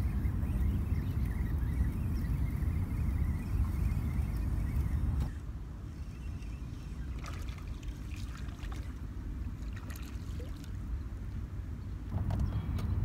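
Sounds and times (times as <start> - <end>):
wind on microphone: 0.0 - 8.9
water lapping at rocks: 7.2 - 10.8.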